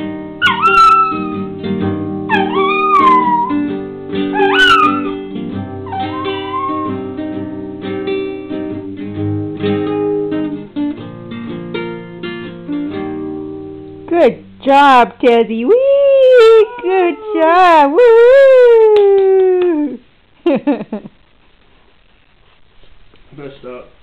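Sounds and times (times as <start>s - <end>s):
acoustic guitar strummed: 0.0s - 14.7s
puppy howling: 0.4s - 1.5s, 2.3s - 3.7s, 4.3s - 5.2s, 5.8s - 7.1s, 15.7s - 20.0s.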